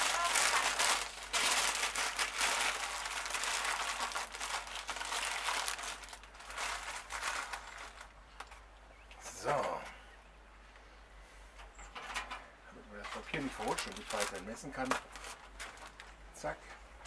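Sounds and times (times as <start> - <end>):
baking paper crinkling: 0.0 - 8.6, 13.0 - 16.2.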